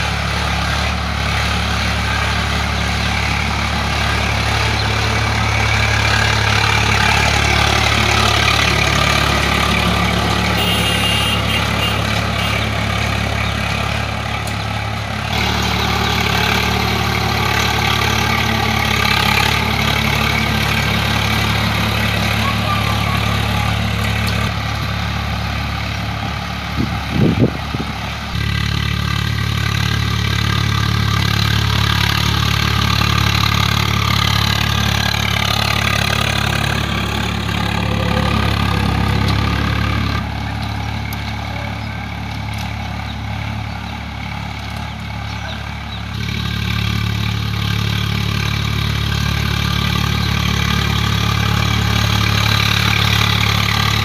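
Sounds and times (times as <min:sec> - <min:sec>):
tractor diesel engine running: 0:00.0 - 0:54.0
rotavator churning soil: 0:31.0 - 0:43.6.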